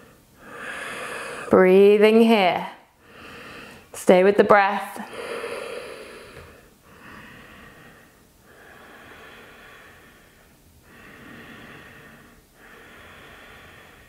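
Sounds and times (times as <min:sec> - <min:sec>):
woman breathing through constricted throat: 0:00.0 - 0:01.5, 0:05.0 - 0:14.0.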